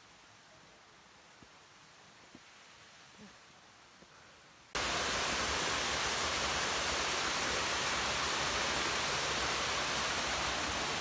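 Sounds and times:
waterfall rushing: 4.8 - 11.0.

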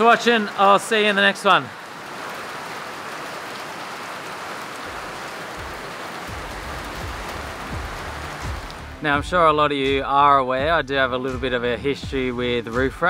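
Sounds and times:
heavy rain hissing: 0.0 - 9.2
low rumble: 5.6 - 10.0.

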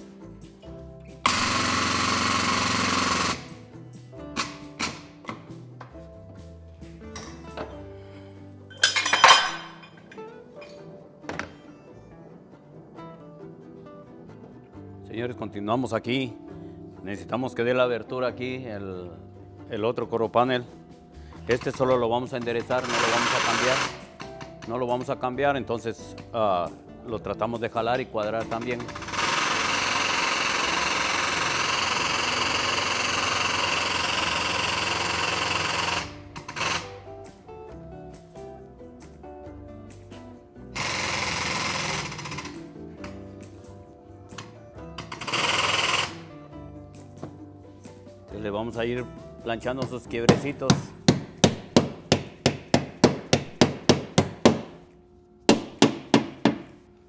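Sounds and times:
hydraulic pump running with hiss: 1.1 - 3.8, 22.4 - 24.6, 28.5 - 37.3, 40.7 - 43.2, 44.4 - 46.4.

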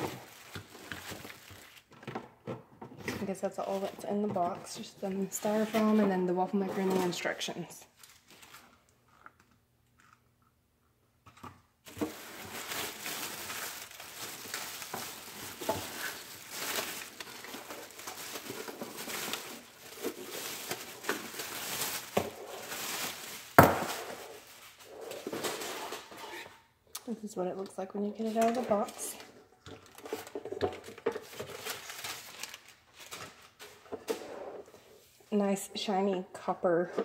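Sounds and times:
plastic bag crinkling: 0.0 - 2.0, 11.8 - 26.1, 28.2 - 33.8.

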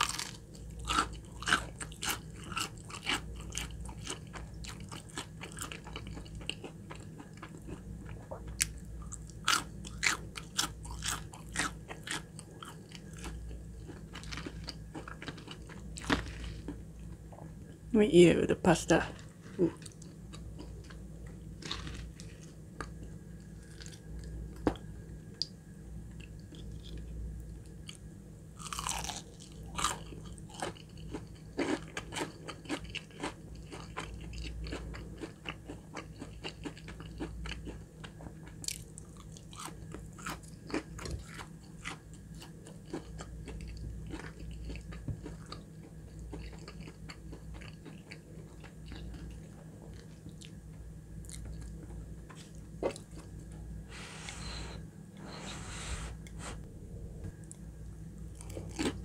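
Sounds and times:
crunching fried chicken: 0.0 - 16.8, 19.6 - 24.8, 28.6 - 50.6, 58.3 - 59.0.

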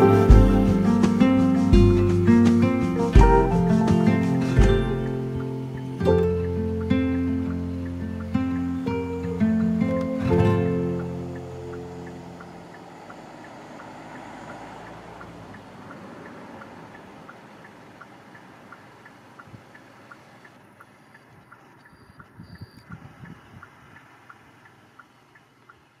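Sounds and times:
low thumps: 0.0 - 6.9
soft tick-tock: 5.1 - 26.0.

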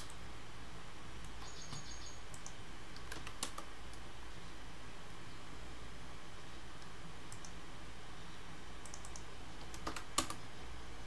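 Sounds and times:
steady low hum: 0.0 - 11.0
mouse and keyboard clicks: 1.2 - 4.0, 6.8 - 7.6, 8.8 - 10.4.

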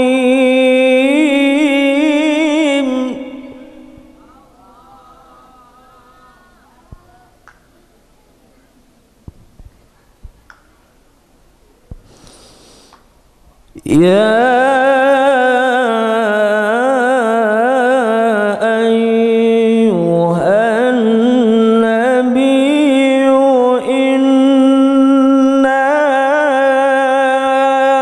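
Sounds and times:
man reciting melodically: 0.0 - 5.7, 13.7 - 28.0.

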